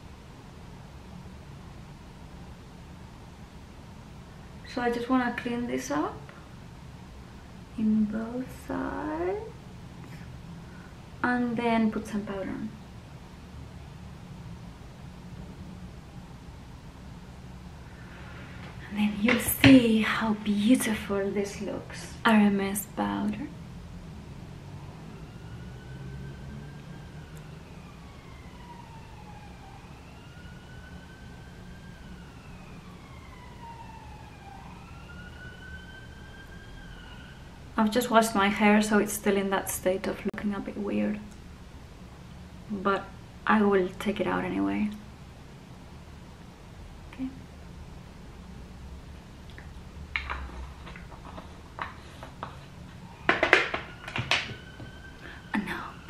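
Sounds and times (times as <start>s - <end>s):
emergency vehicle siren wailing: 24.0s - 37.8s, 50.1s - 56.0s.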